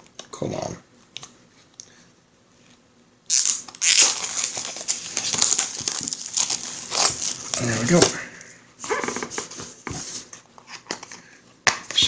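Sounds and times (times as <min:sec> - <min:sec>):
plastic wrapper crinkling: 0:03.3 - 0:08.1.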